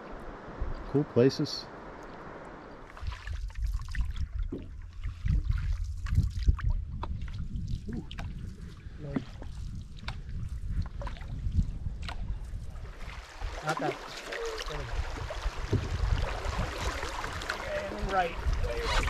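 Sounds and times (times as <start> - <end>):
paddle pulling through water: 2.2 - 19.0
water dripping and splashing: 2.8 - 18.8.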